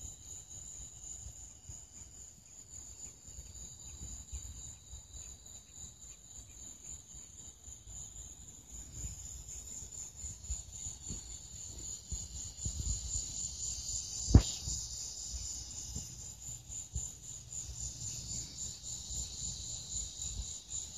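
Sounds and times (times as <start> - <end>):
insects chirring: 0.0 - 20.9
sharp knock: 14.3 - 14.8.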